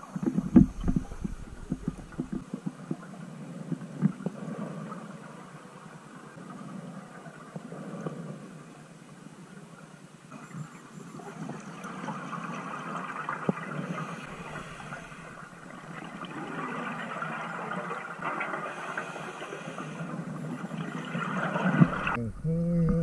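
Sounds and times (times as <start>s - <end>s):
scuba regulator breathing underwater: 13.8s - 15.9s, 18.6s - 20.3s.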